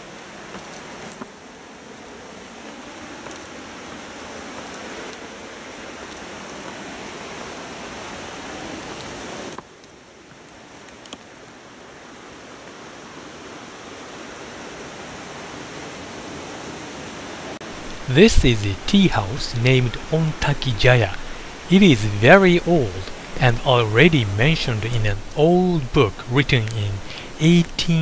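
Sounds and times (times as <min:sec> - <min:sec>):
waterfall rushing: 0:17.6 - 0:28.0.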